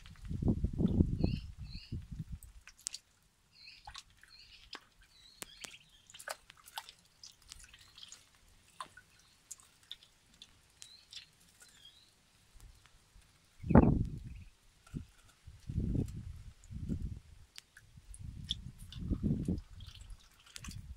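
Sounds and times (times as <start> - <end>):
water drips and splashes: 1.7 - 20.9
ducklings peeping: 3.6 - 12.1, 13.5 - 14.5, 18.4 - 20.6.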